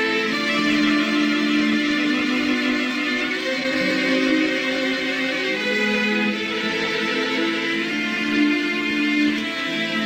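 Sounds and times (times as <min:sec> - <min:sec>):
slow melody of held notes: 0:03.1 - 0:09.8.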